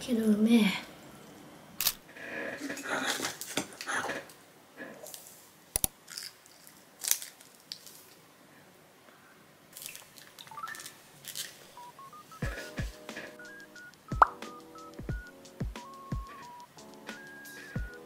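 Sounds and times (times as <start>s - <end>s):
paper rustling: 9.8s - 11.8s
gentle melody of rising notes: 12.0s - 18.0s.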